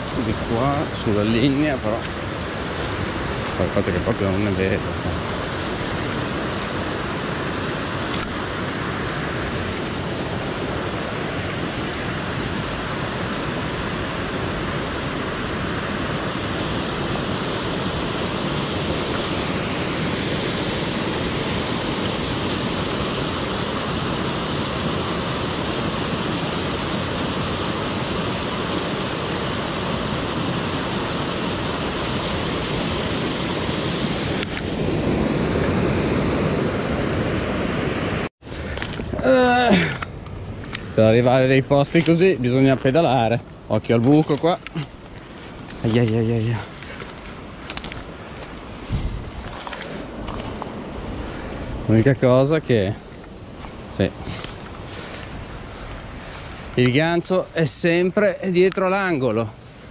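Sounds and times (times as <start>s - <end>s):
water rushing over a weir: 0.0s - 40.0s.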